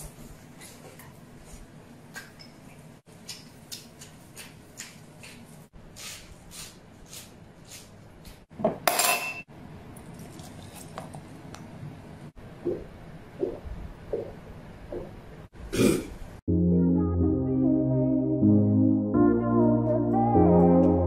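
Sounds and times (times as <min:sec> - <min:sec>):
dishes clattering with clink: 0:08.6 - 0:09.5.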